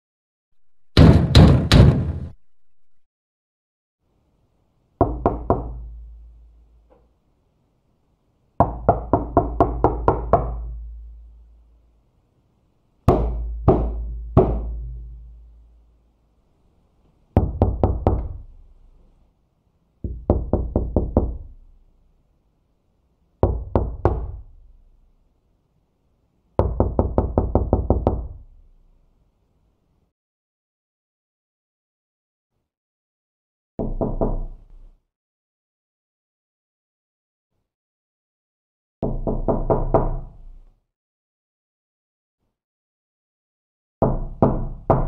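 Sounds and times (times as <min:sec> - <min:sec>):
knuckles knocking on door: 0:13.1 - 0:14.8, 0:20.0 - 0:21.5, 0:26.6 - 0:28.3.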